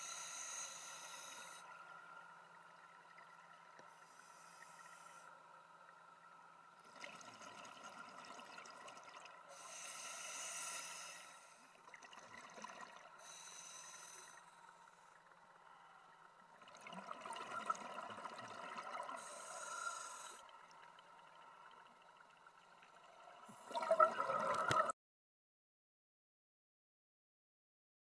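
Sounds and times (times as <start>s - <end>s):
regulator hissing inhalations: 0.0s - 1.8s, 3.9s - 5.4s, 9.5s - 11.7s, 13.2s - 14.7s, 19.2s - 20.5s
exhaled bubbles rushing: 23.6s - 24.9s.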